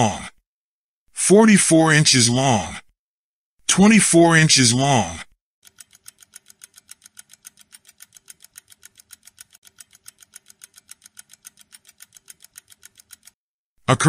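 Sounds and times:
fast clock-like ticks: 5.6 - 13.4.

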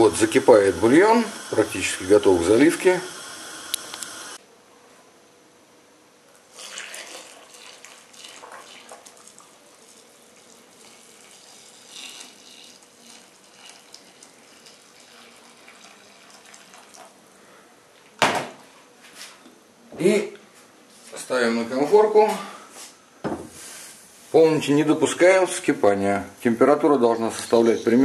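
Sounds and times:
broth pouring and splashing: 6.5 - 17.1.

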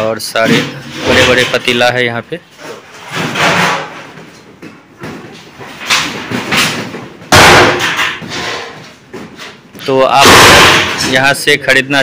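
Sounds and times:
metal pots knocking and thumping: 5.8 - 8.8.

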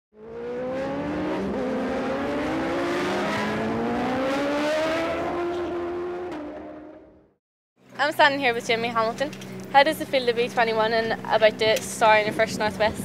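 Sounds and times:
motorcycle engine accelerating hard: 0.1 - 7.4.

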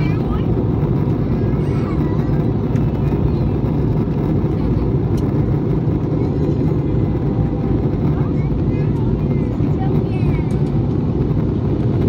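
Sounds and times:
airplane cabin engine rumble: 0.0 - 12.0.

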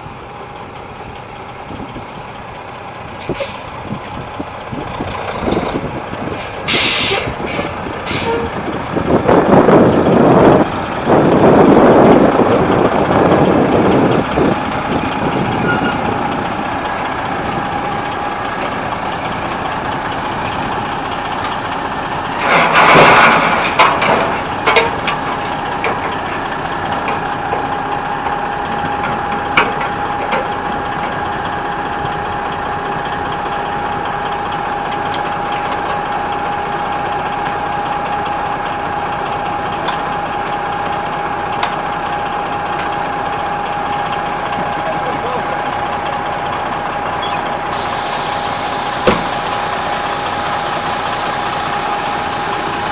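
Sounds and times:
diesel truck idling: 0.0 - 52.9
air brake hissing: 3.2 - 3.7, 6.3 - 8.5, 47.2 - 52.9.

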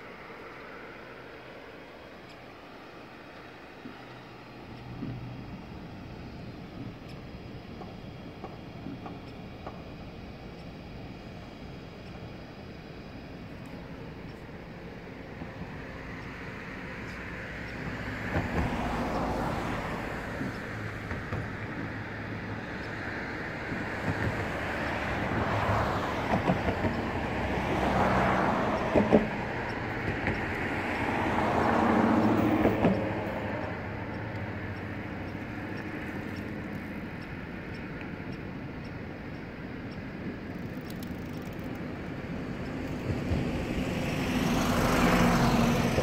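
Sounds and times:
background traffic: 0.0 - 46.0
rail noise: 0.0 - 46.0
vehicles passing: 0.0 - 46.0
sharp clicks: 35.2 - 43.1.

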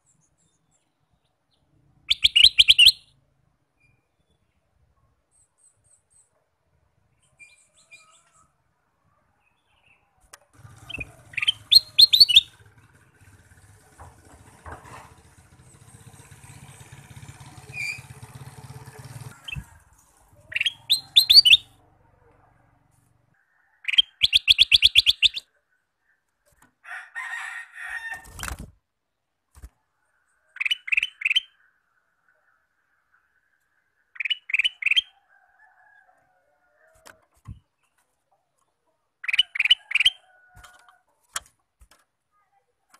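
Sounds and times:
bird singing chirpy notes: 0.0 - 3.1, 10.6 - 13.5, 20.5 - 21.8, 23.9 - 25.5, 34.1 - 35.2.

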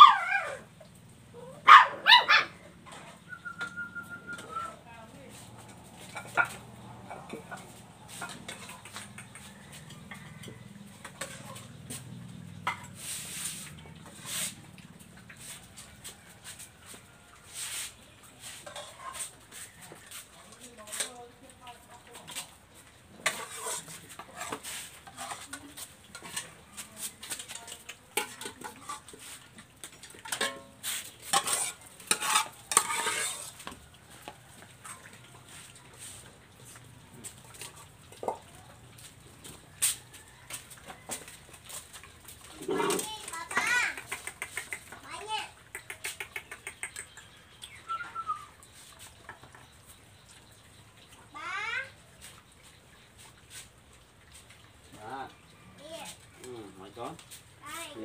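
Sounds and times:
dogs eating: 2.4 - 58.0
plates clattering on tiled floor: 5.6 - 13.0, 18.4 - 20.3, 23.2 - 35.1
metal spoon scraping metal bowl: 7.3 - 12.0, 17.5 - 21.1, 23.2 - 33.8
spoon clinking metal pot: 30.2 - 33.6.

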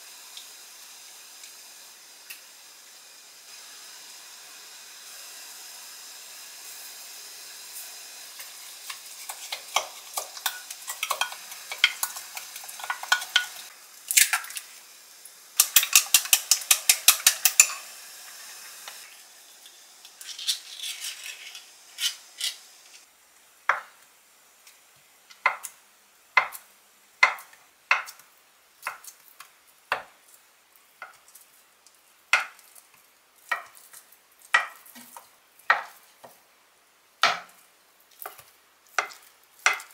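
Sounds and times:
spoon clinking glass bowl: 15.6 - 17.8.

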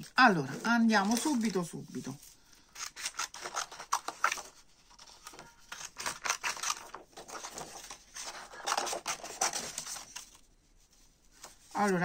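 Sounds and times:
paper rustling: 0.0 - 12.0
scissors snipping paper: 2.7 - 4.5, 5.3 - 10.1.

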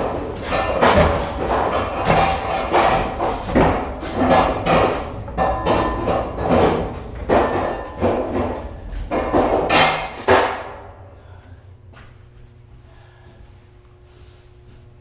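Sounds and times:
heavy metallic knocks and clanks: 0.0 - 11.0
faint hum: 0.0 - 15.0.

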